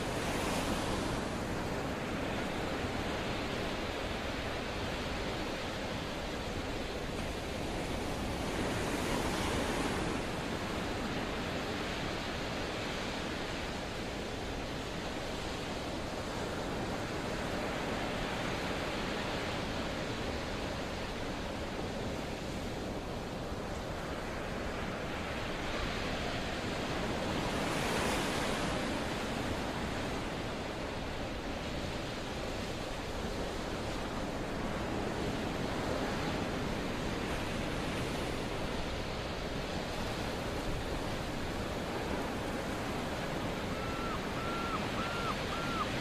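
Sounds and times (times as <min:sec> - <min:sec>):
sea waves rushing: 0:00.0 - 0:12.4, 0:22.7 - 0:46.0
wind: 0:00.0 - 0:46.0.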